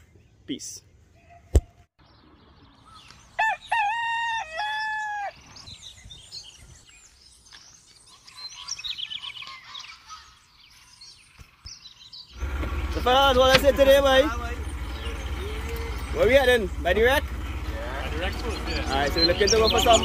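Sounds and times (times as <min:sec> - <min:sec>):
small birds chirping: 0:00.0 - 0:20.0
rooster crowing: 0:03.4 - 0:05.4.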